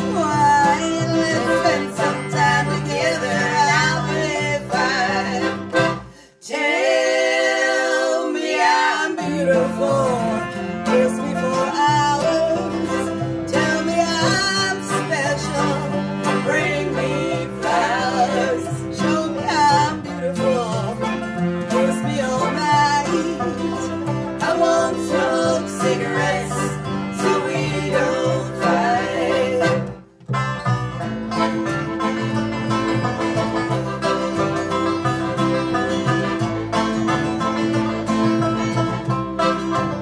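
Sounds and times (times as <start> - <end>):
women singing: 0.0 - 5.7, 6.4 - 21.0, 21.7 - 30.0
acoustic string band playing: 0.0 - 6.2, 6.8 - 40.0.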